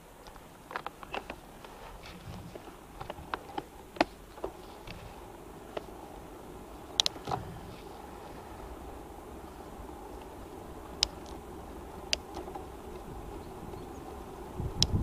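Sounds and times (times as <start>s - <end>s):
light steady wind: 0.0s - 15.0s
bicycle clicks and knocks: 0.2s - 7.6s, 9.4s - 15.0s.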